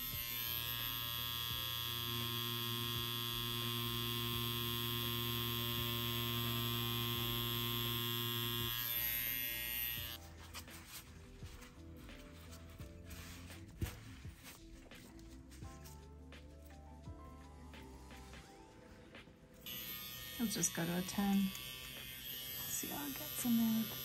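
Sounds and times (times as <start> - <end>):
tattoo pen buzzing: 0.0 - 10.2, 19.6 - 24.0.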